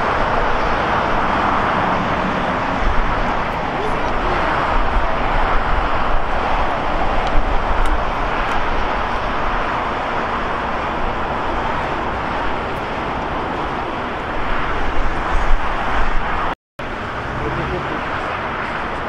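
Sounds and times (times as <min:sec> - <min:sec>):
jet engines roaring: 0:00.0 - 0:19.0.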